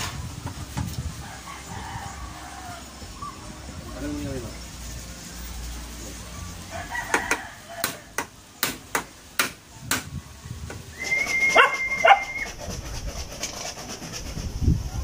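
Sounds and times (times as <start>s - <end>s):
high whistle-like tone: 10.9s - 12.6s
dog yelping: 11.5s - 12.5s
dog barking: 11.6s - 12.3s.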